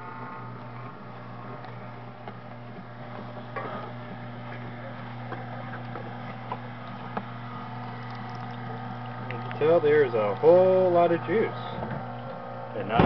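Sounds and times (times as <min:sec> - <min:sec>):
juicer motor hum: 0:00.0 - 0:13.0.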